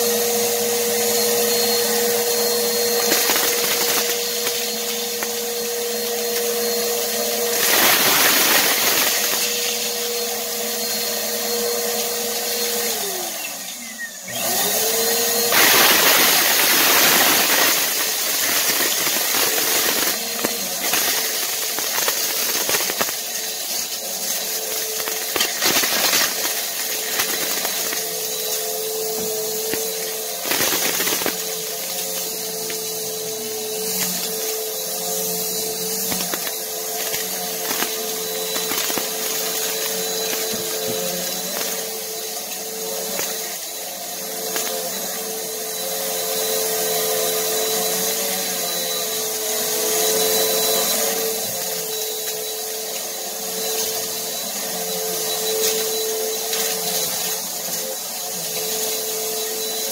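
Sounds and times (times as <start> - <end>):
vacuum cleaner motor humming: 0.0 - 59.9
beans rattling in vacuum: 2.5 - 10.3, 14.6 - 43.6.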